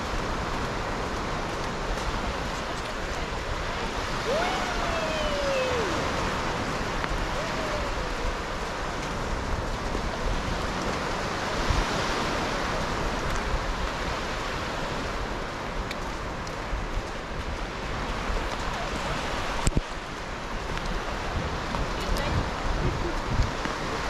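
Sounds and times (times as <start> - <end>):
surf breaking on beach: 0.0 - 24.0.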